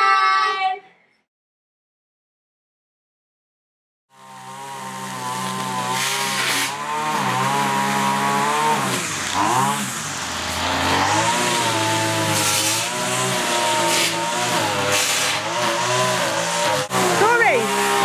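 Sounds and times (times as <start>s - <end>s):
small petrol engine running: 4.1s - 18.0s.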